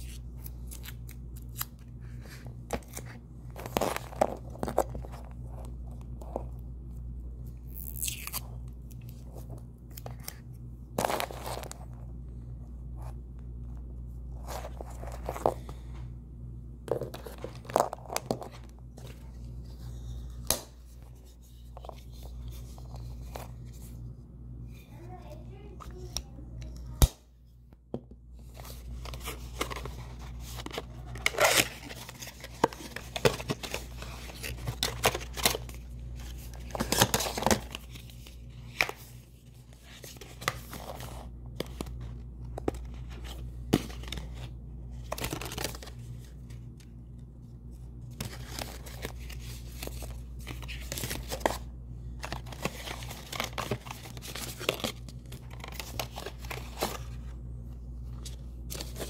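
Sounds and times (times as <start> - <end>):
steady low hum: 0.0 - 59.0
plastic and paper packaging rustling: 28.4 - 46.6, 48.1 - 59.0.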